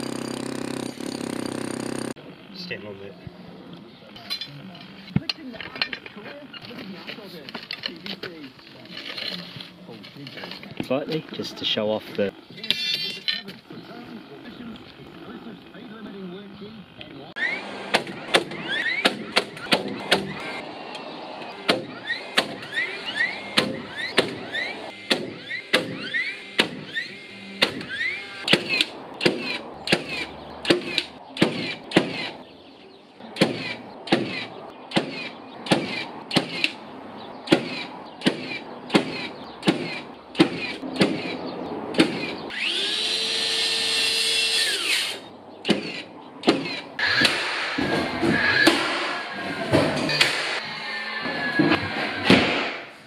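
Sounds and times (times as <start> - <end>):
nail gun whine: 0.0 - 2.1, 17.4 - 20.6, 21.6 - 32.4, 42.0 - 52.9
nail gun firing into wood: 17.9 - 20.5, 25.1 - 27.0, 27.6 - 32.3, 33.4 - 36.8, 37.5 - 41.3, 45.7 - 49.2, 49.9 - 50.6, 52.2 - 52.9.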